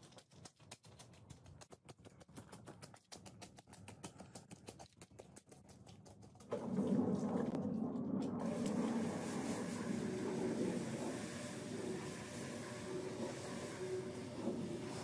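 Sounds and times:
rotary floor scrubber running: 0:06.5 - 0:15.0.

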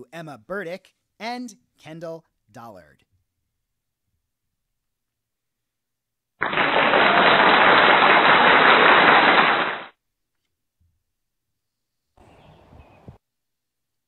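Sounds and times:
dense crackling noise: 0:06.4 - 0:09.9.

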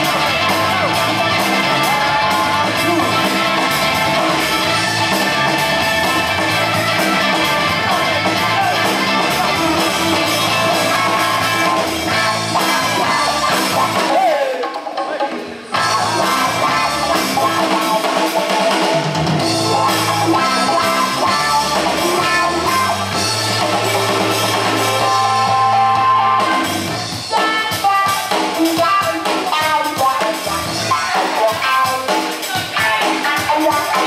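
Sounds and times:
sustained bass notes: 0:00.0 - 0:14.0, 0:15.8 - 0:17.9, 0:19.2 - 0:27.2
drums: 0:00.0 - 0:34.0.

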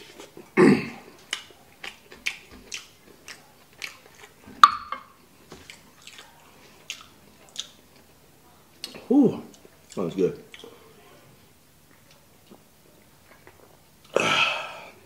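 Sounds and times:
wet chewing mouth clicks: 0:01.2 - 0:04.4, 0:05.6 - 0:07.8.

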